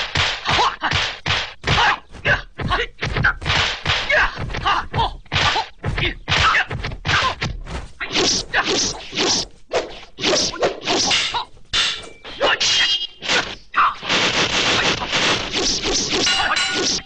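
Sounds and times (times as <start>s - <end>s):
punch and kick impacts: 0.0s - 9.4s.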